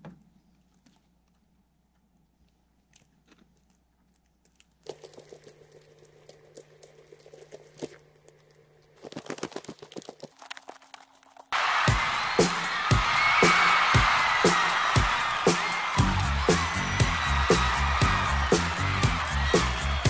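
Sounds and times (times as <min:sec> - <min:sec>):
loud background music: 0:11.7 - 0:20.0.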